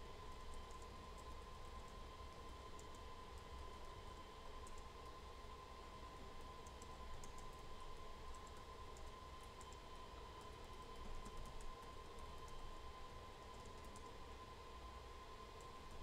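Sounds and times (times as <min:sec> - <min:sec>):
faint tone and low hum: 0:00.0 - 0:16.0
keyboard typing: 0:11.0 - 0:12.5.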